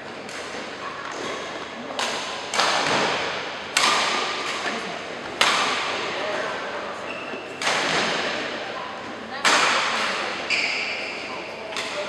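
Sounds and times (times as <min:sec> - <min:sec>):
rackets hitting shuttlecocks: 0:00.1 - 0:06.7, 0:07.5 - 0:08.6.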